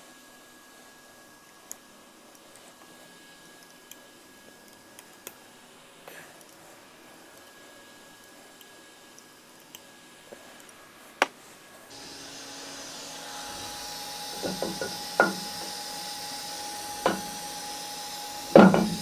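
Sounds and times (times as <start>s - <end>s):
milling machine hum: 11.9s - 19.0s
metal clunks: 14.4s - 15.7s, 17.0s - 17.4s, 18.5s - 19.0s.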